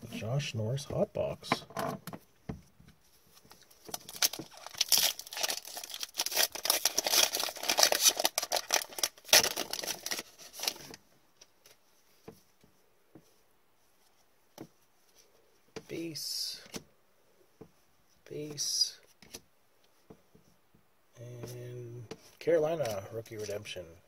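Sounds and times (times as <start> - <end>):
foil wrapper tearing and crinkling: 3.9 - 11.0.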